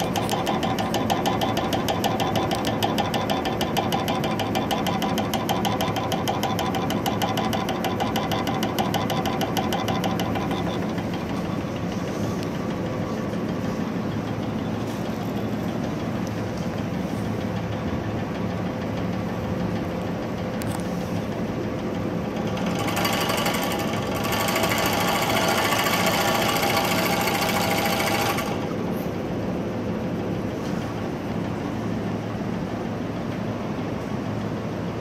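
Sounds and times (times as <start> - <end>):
scroll saw running: 22.4 - 28.8.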